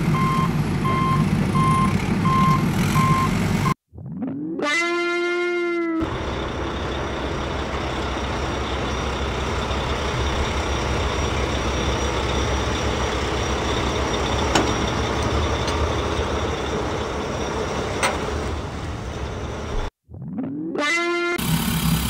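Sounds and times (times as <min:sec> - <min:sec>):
truck engine running: 0:00.0 - 0:03.8, 0:06.0 - 0:19.9, 0:21.4 - 0:22.0.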